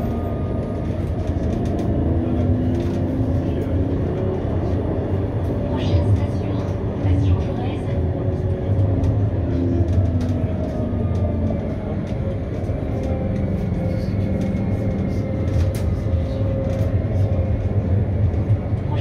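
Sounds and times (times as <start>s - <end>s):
tram wheels rumbling on rails: 0.0s - 19.0s.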